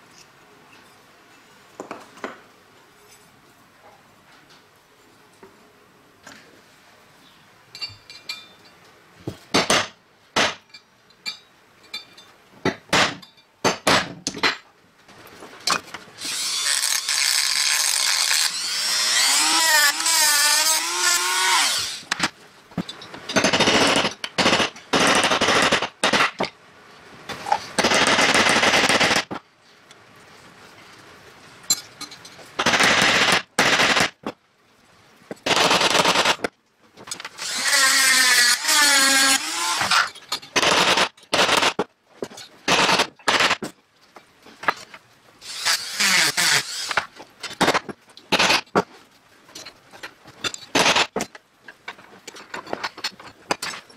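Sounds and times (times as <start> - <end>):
rotary tool grinding steel: 16.2 - 22.1, 37.4 - 40.1, 45.4 - 47.1.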